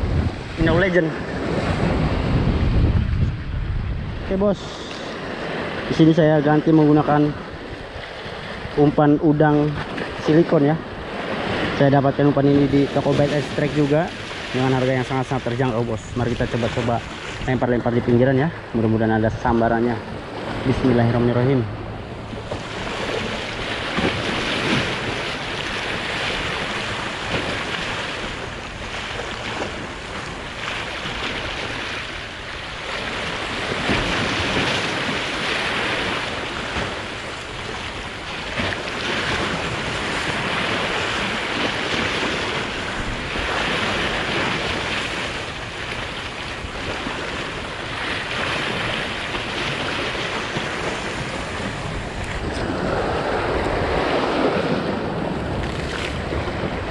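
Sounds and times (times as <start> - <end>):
wind buffeting microphone: 0.0 - 5.9, 7.3 - 56.9
waves splashing against breakwater: 0.0 - 56.9.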